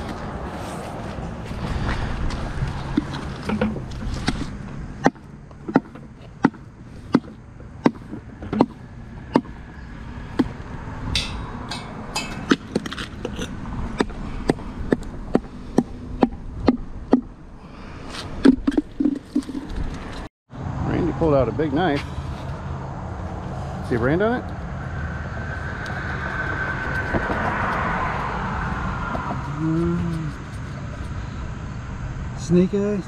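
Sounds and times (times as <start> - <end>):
outdoor background noise: 0.0 - 33.0
sharp hard knocks: 3.0 - 9.6, 14.0 - 17.3.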